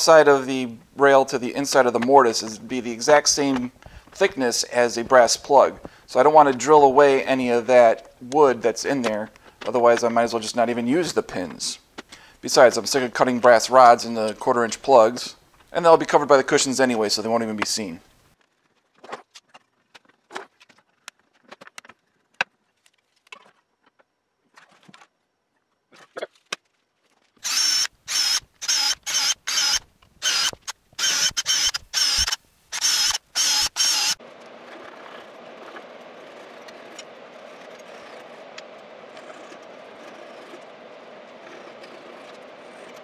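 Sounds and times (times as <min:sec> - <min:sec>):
drill whining: 0:27.4 - 0:38.4, 0:39.1 - 0:43.0
steady hum: 0:31.2 - 0:43.0.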